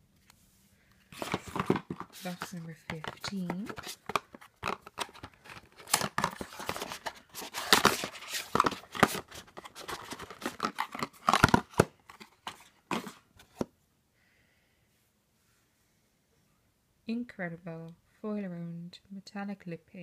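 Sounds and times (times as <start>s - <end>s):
packaging rustling and tearing: 1.1s - 13.6s.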